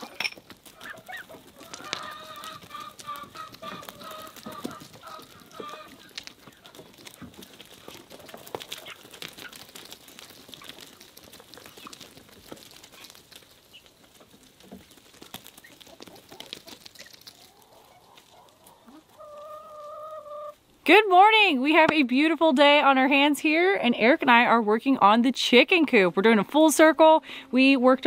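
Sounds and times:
chickens clucking: 0.0s - 20.6s
chickens walking on gravel: 0.0s - 28.0s.

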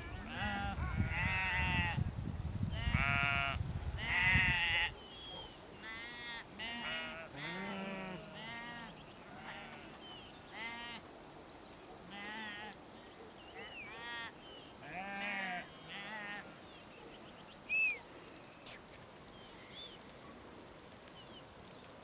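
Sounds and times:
sheep bleating: 0.1s - 2.0s, 5.8s - 11.0s, 12.1s - 12.8s, 14.0s - 16.5s.

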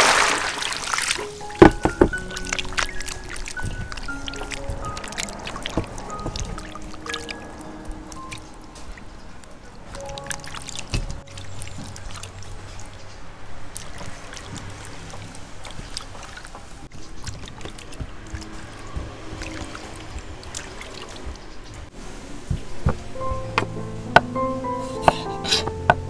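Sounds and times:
water splashing and trickling: 0.0s - 26.0s
background music: 0.9s - 13.4s, 22.8s - 26.0s
clicks and knocks: 1.2s - 2.4s.

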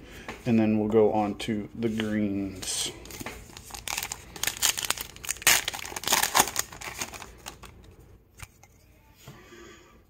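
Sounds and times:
foil wrapper crinkling and tearing: 3.1s - 7.8s.

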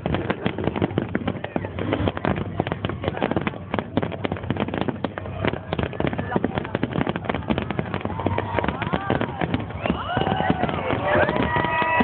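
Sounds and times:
firecrackers popping and crackling: 0.0s - 12.0s
voices: 4.9s - 12.0s.

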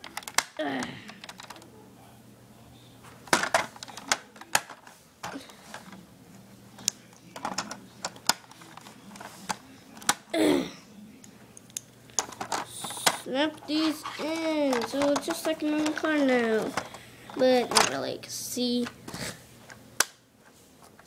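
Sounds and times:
plastic toy parts clicking: 0.0s - 1.6s, 6.8s - 10.3s, 11.6s - 17.0s, 17.7s - 18.0s.

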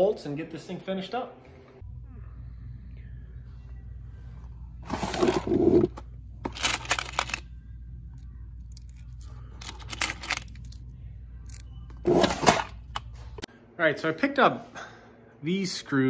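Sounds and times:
low steady hum: 1.4s - 13.8s
screws clinking in metal drawer: 9.6s - 10.8s, 12.0s - 12.8s.

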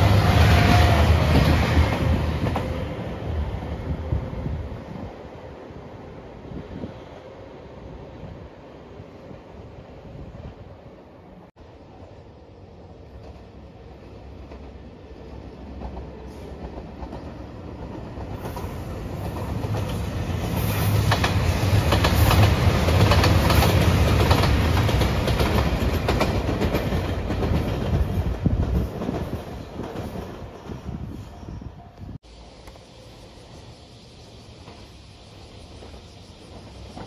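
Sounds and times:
train engine rumble: 0.0s - 37.0s
wheels clacking over rail joints: 14.4s - 30.8s.

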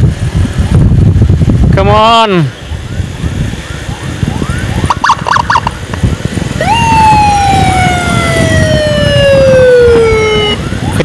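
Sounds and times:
motorcycle riding at high speed: 0.0s - 11.0s
wind rumble: 0.0s - 11.0s
faint rising siren chirps: 2.5s - 11.0s
short siren blips: 2.8s - 11.0s
siren wailing: 2.8s - 11.0s.

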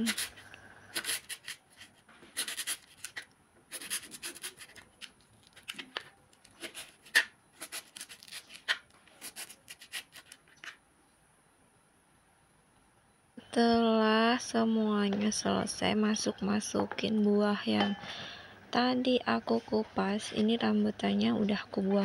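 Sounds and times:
knife cutting on a plastic board: 0.0s - 10.8s.

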